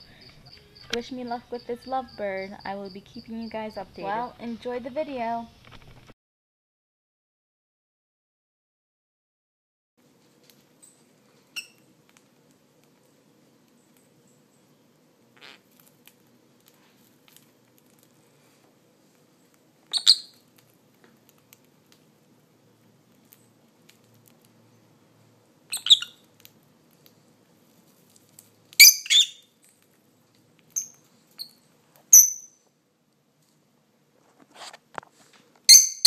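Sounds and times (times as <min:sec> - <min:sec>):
birds chirping: 0:25.7 - 0:26.2.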